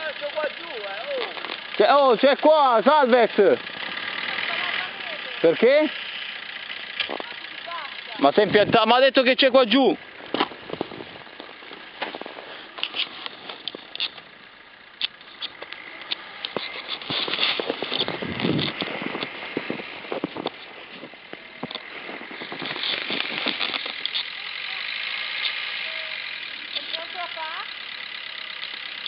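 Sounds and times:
faint car engine running: 0:00.0 - 0:29.0
footsteps crunching in snow: 0:10.1 - 0:13.9.

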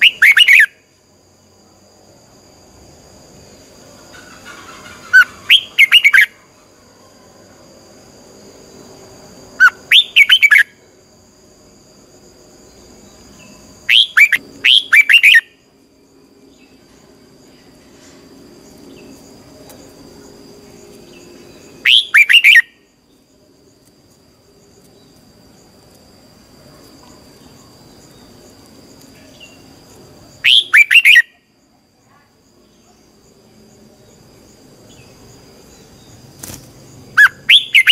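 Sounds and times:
bulbul chirping song: 0:00.0 - 0:00.8, 0:04.0 - 0:06.8, 0:09.5 - 0:10.9, 0:12.7 - 0:15.7, 0:21.1 - 0:23.2, 0:30.4 - 0:31.5, 0:37.1 - 0:37.9.

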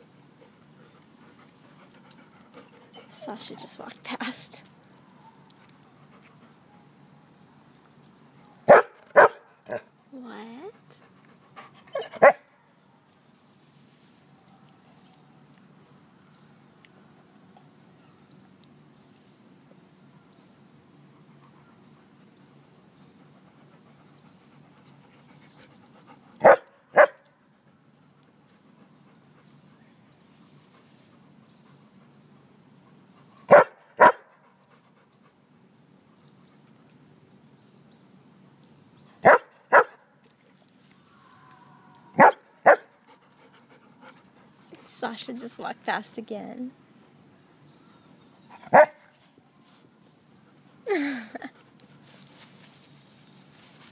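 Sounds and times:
dog barking: 0:08.7 - 0:09.8, 0:12.0 - 0:12.5, 0:26.4 - 0:27.2, 0:33.5 - 0:34.3, 0:39.2 - 0:40.0, 0:42.2 - 0:42.9, 0:48.7 - 0:49.1.

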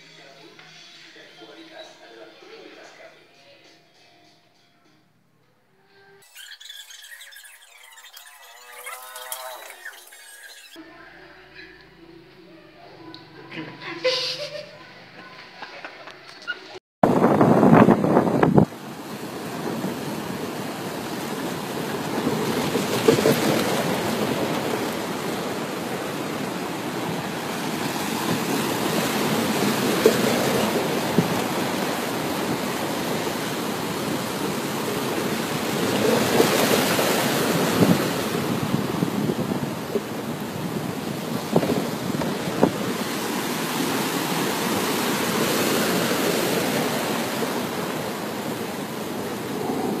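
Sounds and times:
sea waves breaking: 0:06.2 - 0:10.8, 0:17.0 - 0:50.0
wind buffeting microphone: 0:17.0 - 0:50.0.

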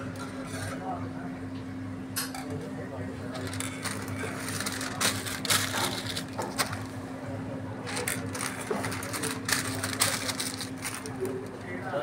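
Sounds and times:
paper wrap crinkling: 0:03.2 - 0:07.0, 0:07.8 - 0:11.8.

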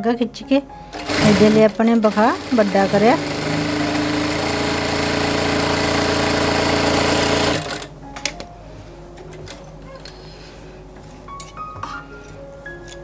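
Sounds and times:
sewing machine running: 0:00.9 - 0:07.9.

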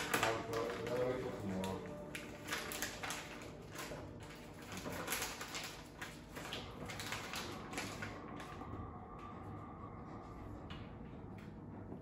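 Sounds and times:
plastic package crinkling: 0:00.0 - 0:08.7.

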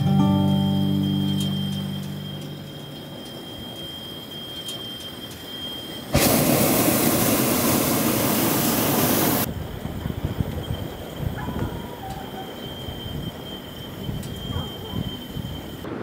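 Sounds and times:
propane burner blast: 0:00.5 - 0:11.4.

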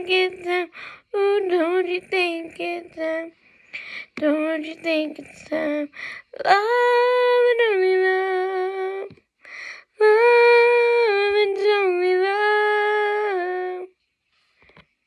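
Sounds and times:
woman singing without words: 0:00.0 - 0:14.0
quick breath: 0:00.7 - 0:01.1, 0:03.4 - 0:04.2, 0:05.9 - 0:06.3.

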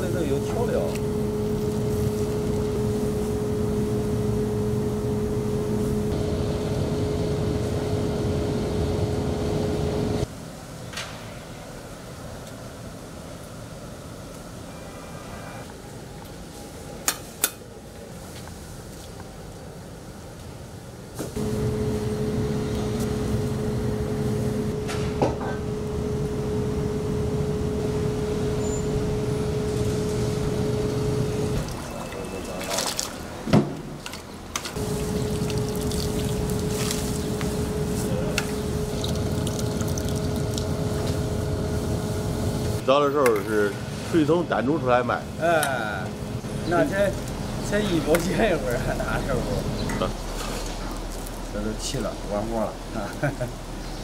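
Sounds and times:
stove fire roaring: 0:00.0 - 0:10.3, 0:21.1 - 0:32.0, 0:33.2 - 0:53.9
constant hum: 0:00.0 - 0:54.0.

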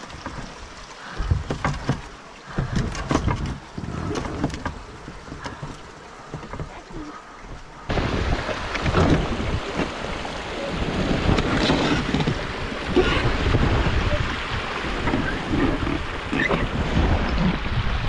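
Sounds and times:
water rushing over dam: 0:00.0 - 0:18.0
wind buffeting microphone: 0:07.4 - 0:18.0.

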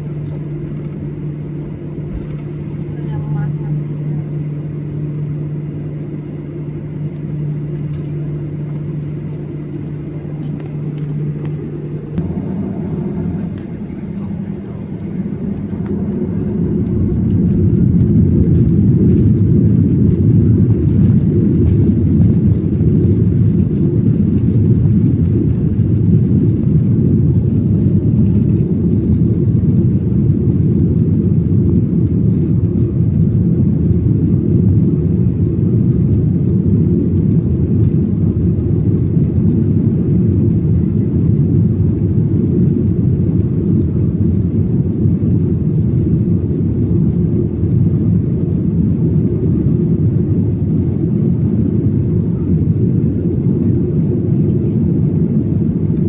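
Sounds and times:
jet engines humming: 0:00.0 - 0:56.0.

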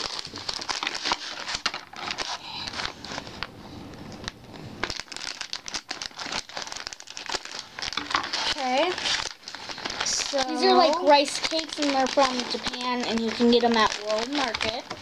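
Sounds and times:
foil bag crinkling: 0:00.0 - 0:03.4, 0:04.2 - 0:15.0
scissors cutting bag: 0:10.0 - 0:15.0.

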